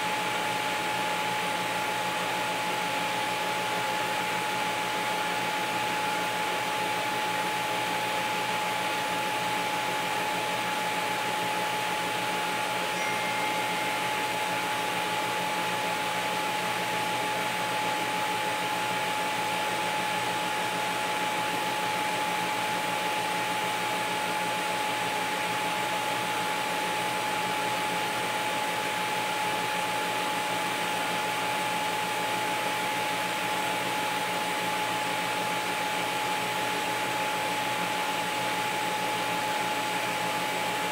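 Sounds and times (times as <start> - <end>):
steady high whine: 11.4 - 17.2.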